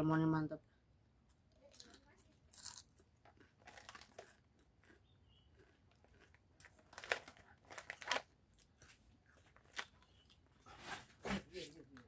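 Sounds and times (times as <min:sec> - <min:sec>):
chip bag crinkling: 0:01.6 - 0:10.4.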